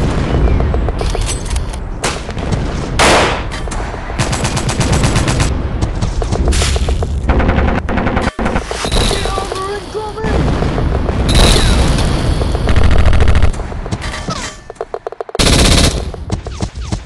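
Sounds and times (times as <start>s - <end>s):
rifle shots: 3.0s - 3.5s
machine-gun bursts: 15.4s - 16.1s.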